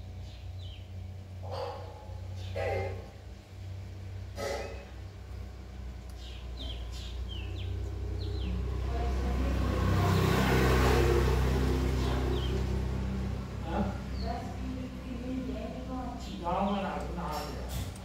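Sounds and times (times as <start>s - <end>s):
bird chirping: 0.0s - 3.5s, 6.0s - 9.2s, 11.6s - 17.7s
motor vehicle passing: 0.0s - 18.0s.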